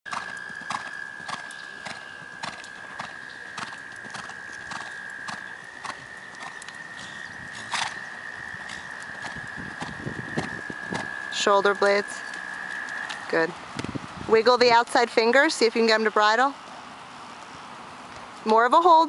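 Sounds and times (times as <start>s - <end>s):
horse hoofbeats on sand: 0.1s - 13.3s.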